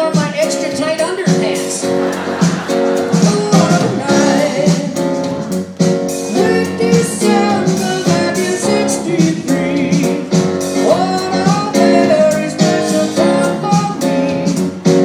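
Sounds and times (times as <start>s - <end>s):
man singing in puppet voice: 0.0s - 1.9s, 3.1s - 5.1s, 6.3s - 14.9s.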